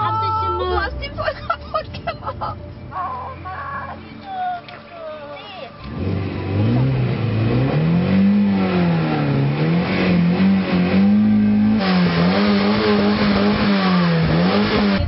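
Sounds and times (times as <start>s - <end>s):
car engine revving: 5.8s - 15.0s.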